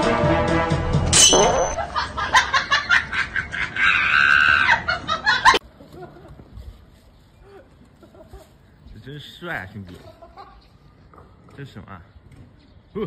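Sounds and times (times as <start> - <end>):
background music: 0.0 - 1.8
person shrieking and laughing: 3.1 - 6.3.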